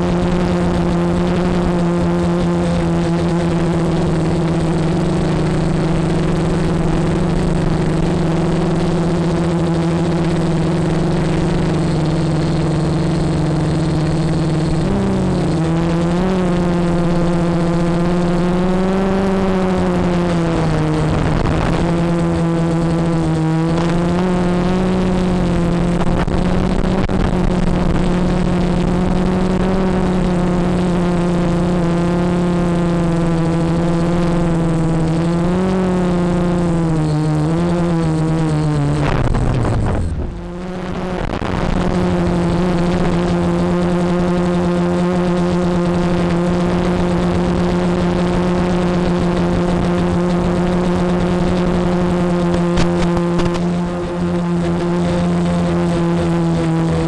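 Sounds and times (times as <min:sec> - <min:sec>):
electric motors and propellers humming: 0:00.0 - 0:57.0
rush of air: 0:38.8 - 0:42.2.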